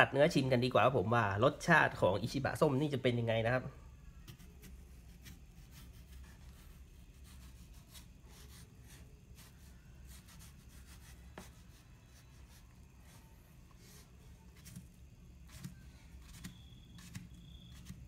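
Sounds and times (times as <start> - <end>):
knife cutting on cutting board: 4.3 - 9.5, 13.8 - 18.0.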